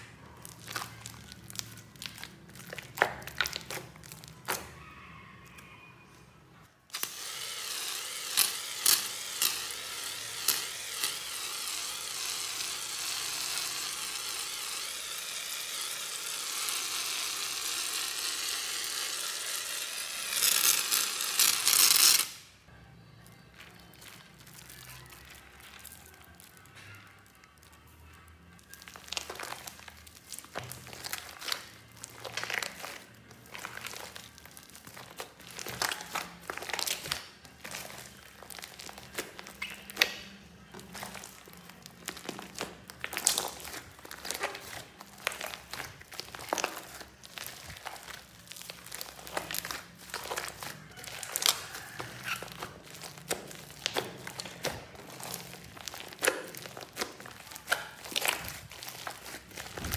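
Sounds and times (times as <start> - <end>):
hands squelching slime and clay: 0.0 - 5.9, 23.2 - 59.9.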